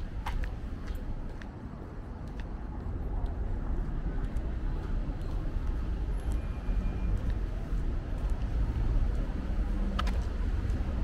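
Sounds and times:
car traffic rumble: 0:00.0 - 0:11.0.

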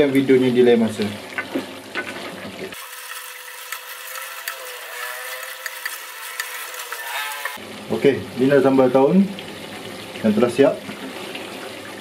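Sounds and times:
sizzling with crackles: 0:00.0 - 0:12.0
wooden spatula scraping metal pot: 0:03.0 - 0:07.6.

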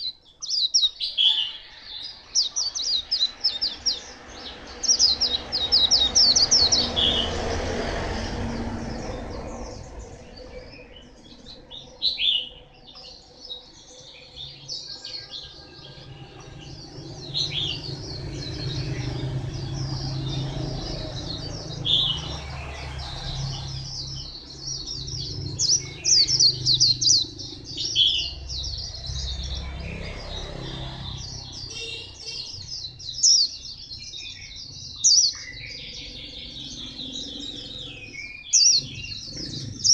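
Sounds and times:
bird twittering chirps and trills: 0:00.0 - 0:39.9.

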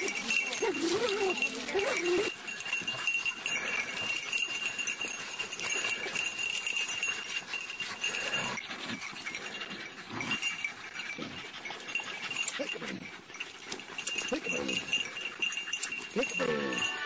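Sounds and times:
faint dog growls: 0:16.1 - 0:17.0.

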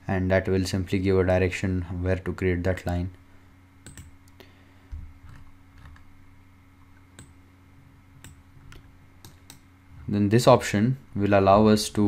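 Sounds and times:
faint electrical hum: 0:00.0 - 0:12.0
computer mouse clicking: 0:03.8 - 0:04.4, 0:05.2 - 0:06.1, 0:07.1 - 0:07.4, 0:08.2 - 0:09.7.

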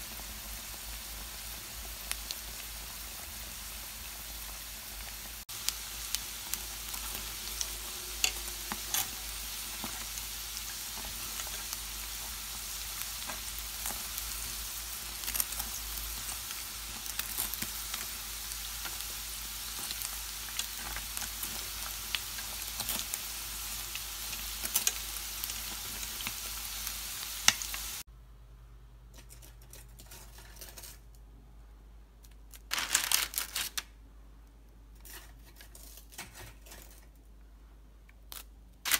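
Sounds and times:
food deep-frying in oil: 0:00.0 - 0:28.1.

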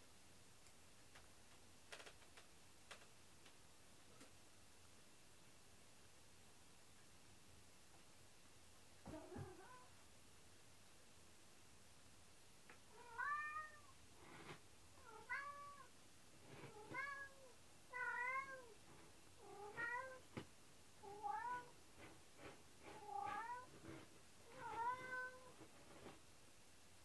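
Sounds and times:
cat meowing: 0:13.0 - 0:13.9, 0:16.8 - 0:18.8, 0:21.0 - 0:21.7, 0:24.5 - 0:25.6.

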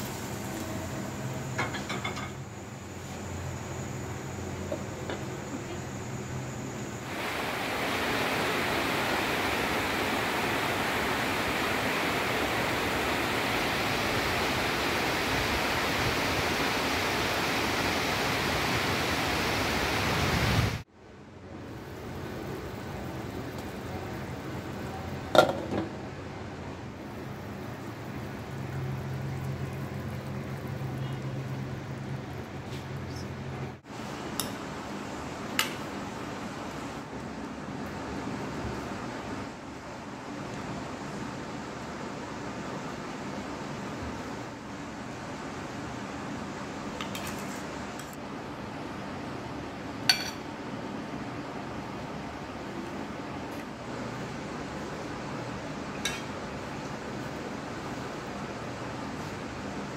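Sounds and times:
quiet simmer: 0:26.6 - 0:34.6
food sizzling in a pot: 0:27.0 - 0:33.0.

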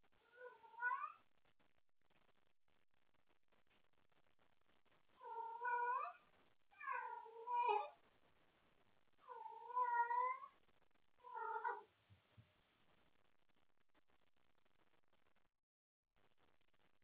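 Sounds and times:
cat meowing loudly: 0:00.3 - 0:01.2, 0:05.2 - 0:06.2, 0:06.8 - 0:08.0, 0:09.2 - 0:10.6, 0:11.2 - 0:11.9.

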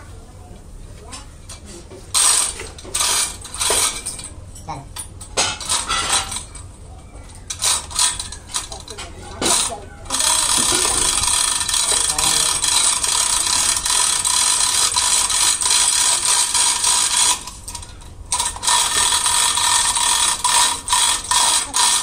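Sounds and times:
machine hissing: 0:07.5 - 0:22.0.

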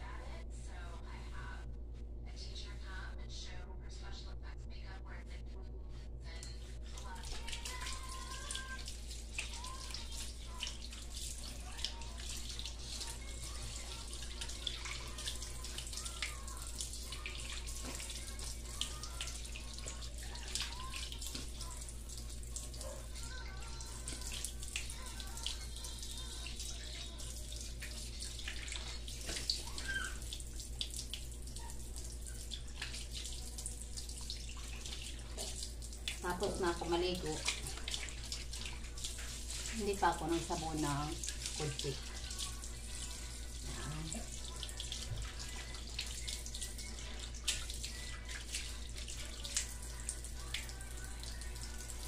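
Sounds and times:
steady low hum: 0:00.0 - 0:09.4
running tap water: 0:06.8 - 0:52.0
water drips: 0:07.0 - 0:52.0.

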